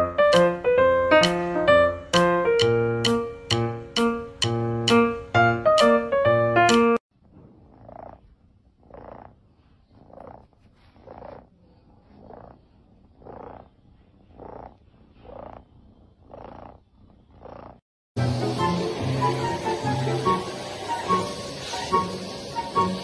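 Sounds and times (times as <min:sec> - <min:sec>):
piano music: 0:00.0 - 0:07.0, 0:18.2 - 0:23.0
kitten purring: 0:07.2 - 0:17.8.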